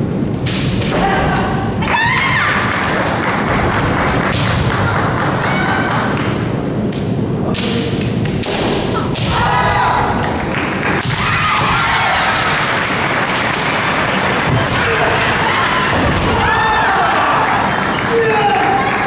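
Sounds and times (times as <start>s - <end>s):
women shouting: 1.0s - 2.7s, 9.3s - 10.2s, 14.7s - 17.6s
bamboo sword strikes: 7.5s - 9.7s.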